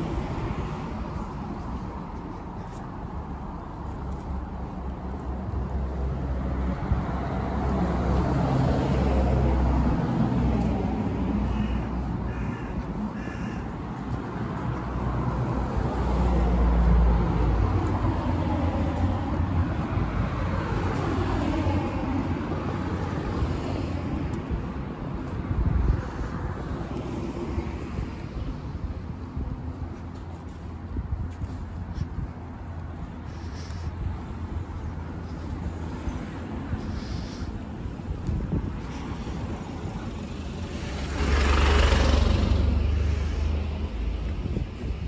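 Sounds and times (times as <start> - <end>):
cars passing: 0.0 - 45.0
crow cawing: 11.4 - 14.2.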